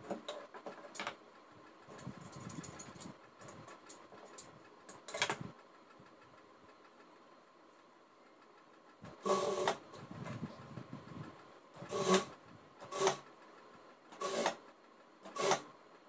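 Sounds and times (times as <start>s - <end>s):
sewing machine stitching: 9.1s - 9.9s, 11.8s - 13.4s, 14.1s - 15.7s.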